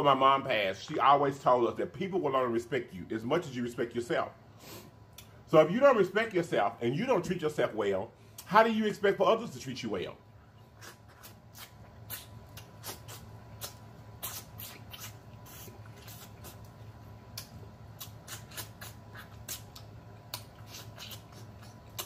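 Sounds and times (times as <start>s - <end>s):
man sucking and licking fingers: 10.5s - 22.0s.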